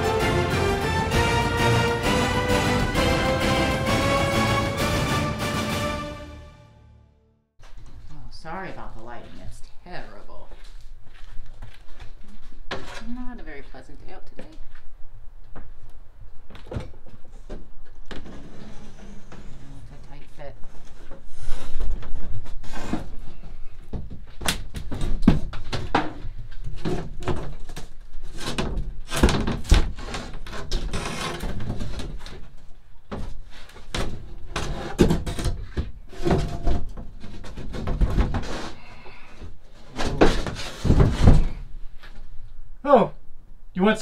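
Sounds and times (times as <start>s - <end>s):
wood panel knocking and scraping: 39.9s - 41.6s.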